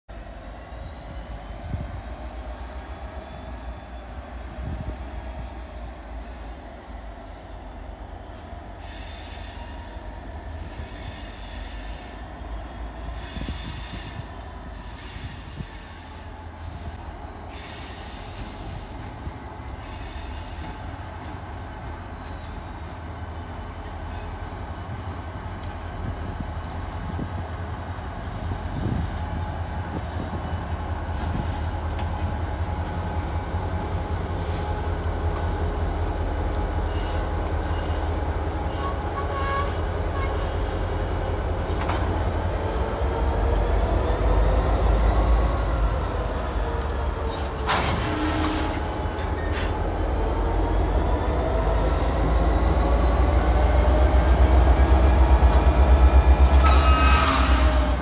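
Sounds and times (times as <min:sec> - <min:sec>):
metallic wheel squeals on rails: 0:00.1 - 0:07.9, 0:22.2 - 0:36.1, 0:36.8 - 0:58.0
diesel locomotive engines rumbling: 0:00.1 - 0:58.0.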